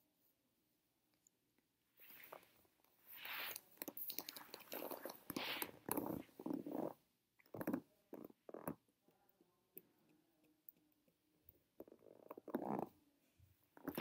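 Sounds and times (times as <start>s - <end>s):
hairbrush brushing hair: 3.1s - 3.7s, 5.1s - 6.3s.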